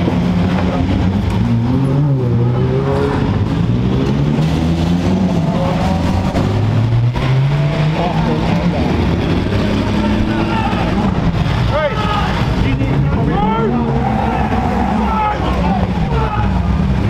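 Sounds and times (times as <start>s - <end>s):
race car engines running: 0.0s - 17.0s.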